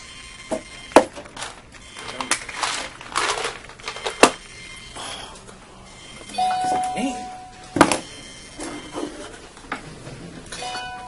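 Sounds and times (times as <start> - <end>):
tablets rattling in bottle: 1.3 - 4.4.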